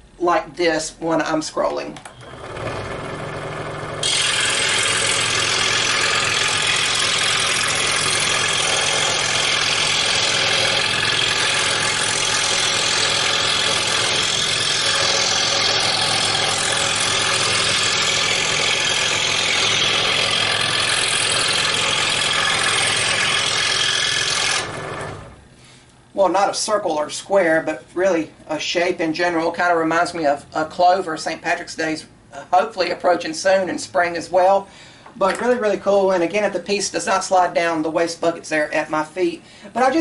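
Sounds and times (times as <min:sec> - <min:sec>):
scroll saw motor hum: 0:02.0 - 0:25.5
saw blade cutting wood: 0:03.9 - 0:25.3.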